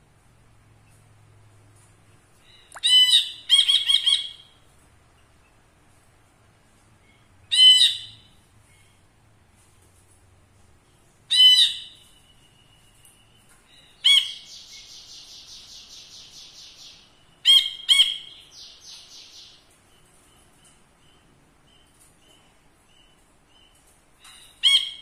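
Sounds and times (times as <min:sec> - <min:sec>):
bird singing: 0:11.3 - 0:25.0.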